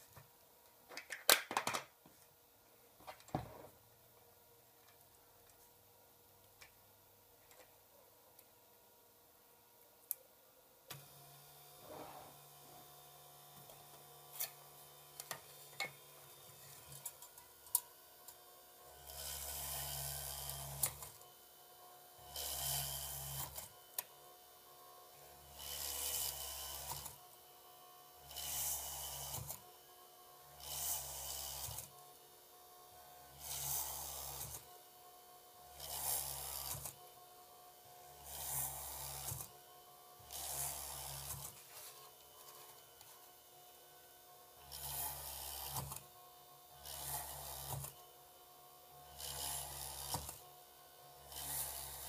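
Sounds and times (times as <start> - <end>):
small drill drilling circuit board: 18.9 - 21.2, 22.2 - 23.8, 25.3 - 27.3, 28.2 - 29.7, 30.5 - 32.0, 33.3 - 34.7, 35.7 - 37.1, 38.1 - 39.6, 40.2 - 41.6, 44.6 - 46.1, 46.8 - 48.0, 49.1 - 50.5, 51.2 - 52.0.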